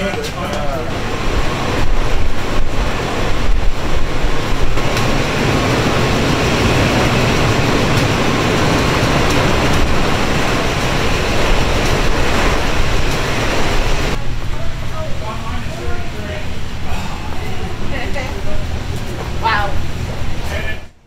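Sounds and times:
refrigeration fans rushing air: 0:00.0 - 0:21.0.

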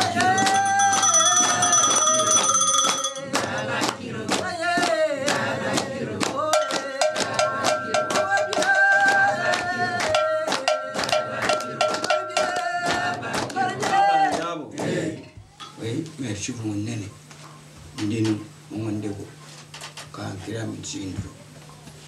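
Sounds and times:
sharp percussion strikes: 0:00.0 - 0:03.5, 0:06.5 - 0:13.0
singing in long held notes: 0:00.0 - 0:15.4.

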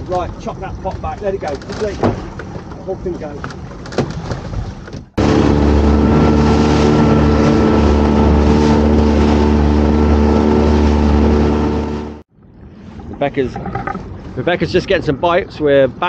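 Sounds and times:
wind and water hiss: 0:00.0 - 0:05.3, 0:12.4 - 0:16.0
outboard motor running: 0:05.1 - 0:12.2.

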